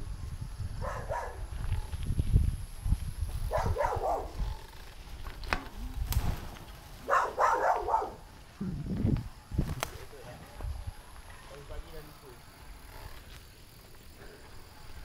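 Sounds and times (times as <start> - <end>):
wind rumble on microphone: 0.0 - 11.3
dog barking: 0.8 - 1.4, 3.5 - 4.4, 7.0 - 8.3.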